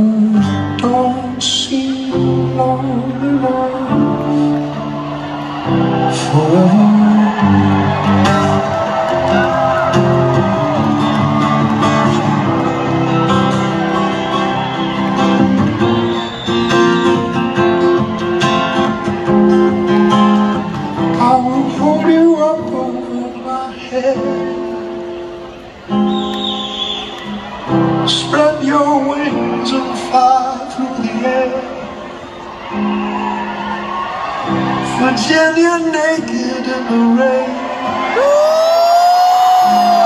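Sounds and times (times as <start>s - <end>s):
man singing: 0.0s - 4.7s, 6.1s - 8.8s, 21.0s - 25.0s, 28.0s - 32.0s, 34.9s - 40.0s
acoustic guitar: 0.0s - 40.0s.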